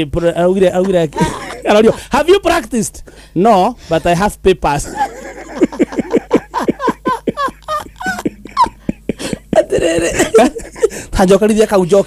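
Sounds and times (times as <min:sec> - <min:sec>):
person laughing: 0:00.6 - 0:02.4, 0:04.8 - 0:11.1.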